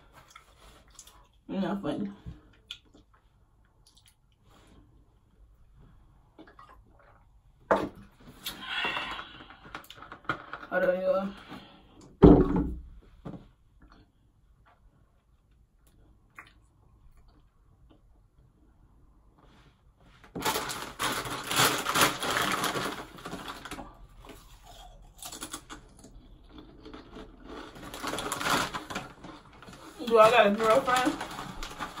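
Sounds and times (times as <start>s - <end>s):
plastic snack bag crinkling: 20.3s - 32.0s.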